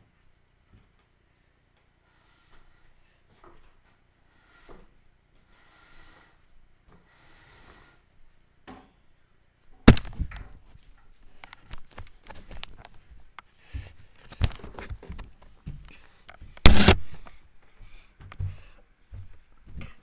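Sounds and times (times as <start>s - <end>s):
microphone handling bumps: 16.6s - 17.2s.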